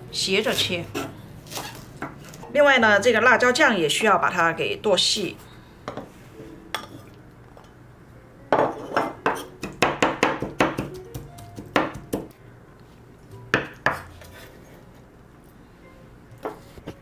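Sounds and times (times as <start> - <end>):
cleaver chopping on wooden board: 9.7 - 11.0.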